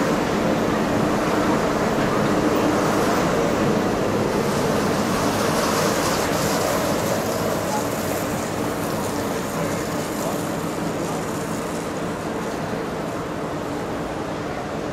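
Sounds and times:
monorail train passing: 0:00.0 - 0:14.9.

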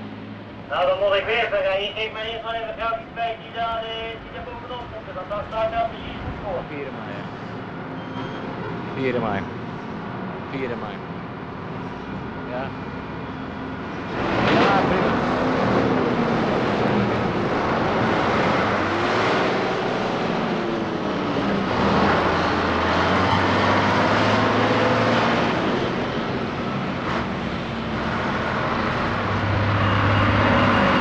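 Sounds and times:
truck diesel engines droning: 0:00.0 - 0:31.0.

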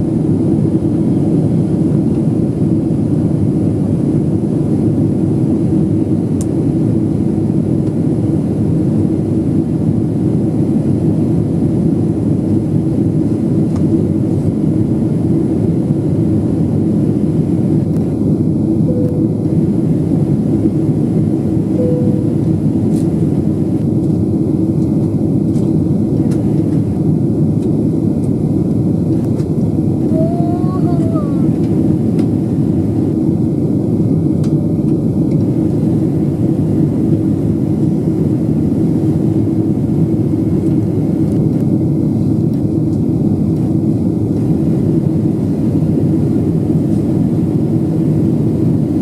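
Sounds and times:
aircraft cabin engine roar: 0:00.0 - 0:49.0
low hum: 0:12.0 - 0:47.0.

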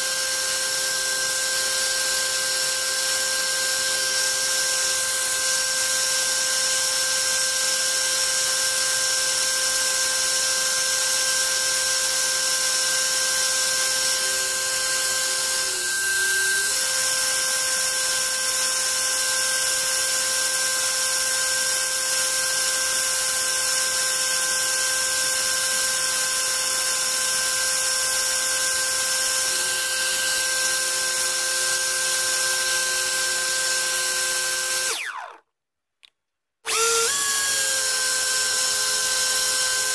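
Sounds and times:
electric motor whine: 0:12.3 - 0:19.2, 0:28.6 - 0:35.4, 0:36.7 - 0:39.9.

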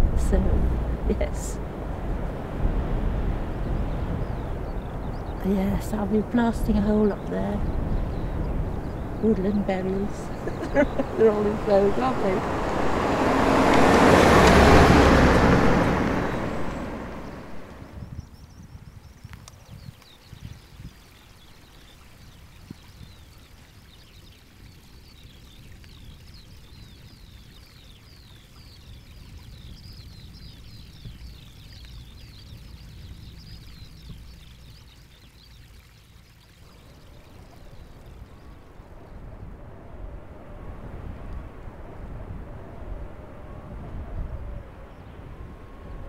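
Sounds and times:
wind rumbling on microphone: 0:00.0 - 0:46.0
small bird singing: 0:03.6 - 0:12.5, 0:16.5 - 0:39.3.

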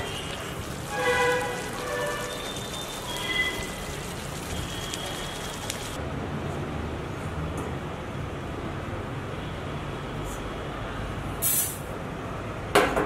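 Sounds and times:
curry sizzling in a pan: 0:00.0 - 0:06.0.

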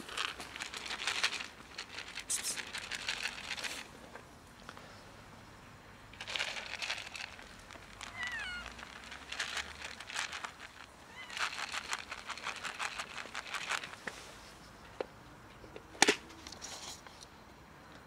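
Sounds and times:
crinkly rustling: 0:00.0 - 0:03.9, 0:06.2 - 0:14.0
cat meowing: 0:08.1 - 0:08.8, 0:11.1 - 0:11.4.

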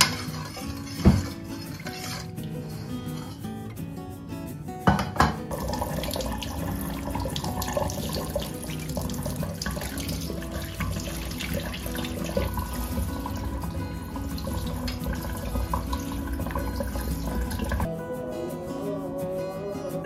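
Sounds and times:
faucet spraying into sink: 0:05.2 - 0:17.9.

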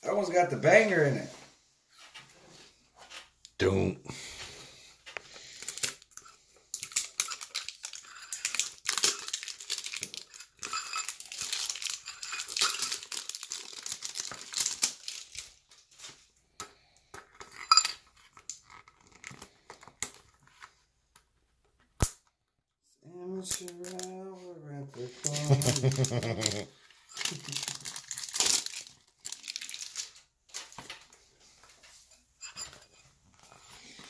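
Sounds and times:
foil wrappers crinkling: 0:05.3 - 0:16.3, 0:23.4 - 0:24.1, 0:25.0 - 0:31.8
metal tin clinks: 0:10.2 - 0:13.0.

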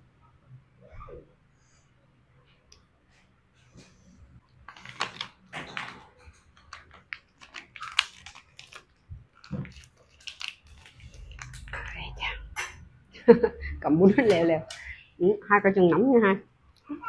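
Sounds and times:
lettuce and rice paper crunching: 0:04.7 - 0:12.0.

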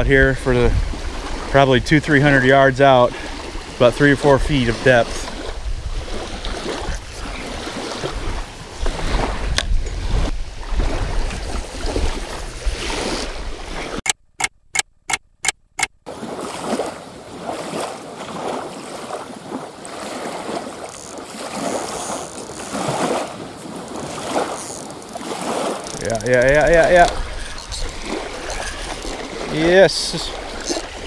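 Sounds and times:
wind on microphone: 0:00.0 - 0:02.5, 0:03.1 - 0:14.0, 0:20.8 - 0:31.0
small waves lapping on shore: 0:00.0 - 0:14.0, 0:15.8 - 0:31.0
sharp clicks: 0:14.0 - 0:16.0.

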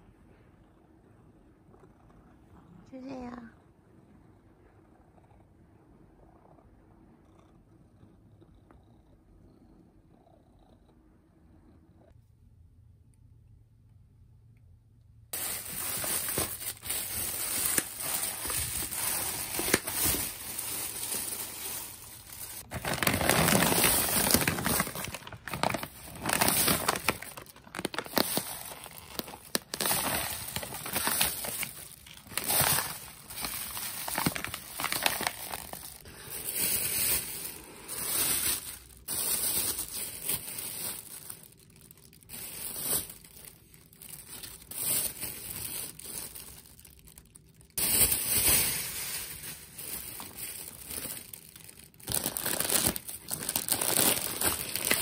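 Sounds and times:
plastic bags crinkling: 0:15.4 - 0:55.0.

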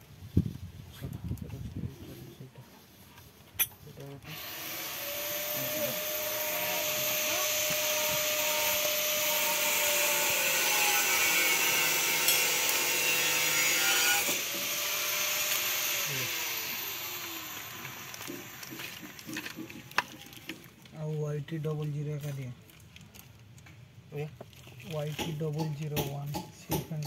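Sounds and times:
plastic packet crinkling: 0:17.2 - 0:25.2.

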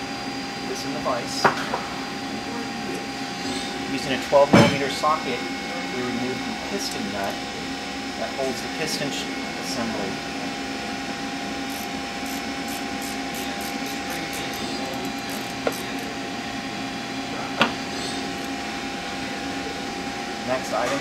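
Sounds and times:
steady background hum: 0:00.0 - 0:21.0
ratchet wrench clicking: 0:11.7 - 0:16.1, 0:18.3 - 0:18.5.

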